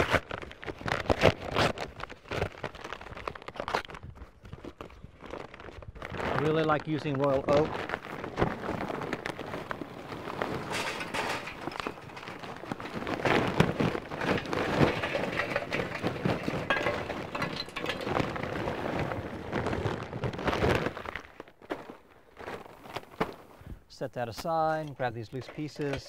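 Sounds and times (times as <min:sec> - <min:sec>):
charcoal clattering into metal: 0:09.6 - 0:21.1, 0:24.8 - 0:26.0.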